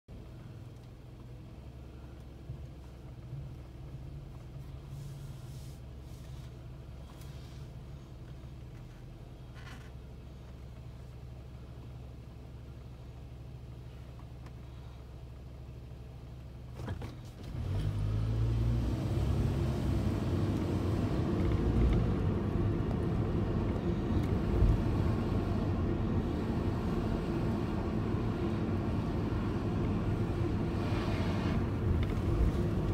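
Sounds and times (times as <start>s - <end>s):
car engine idling: 0.1s - 16.8s
engine and road noise driving: 0.1s - 32.9s
click inside vehicle: 0.7s - 1.4s, 21.3s - 24.6s, 31.8s - 32.9s.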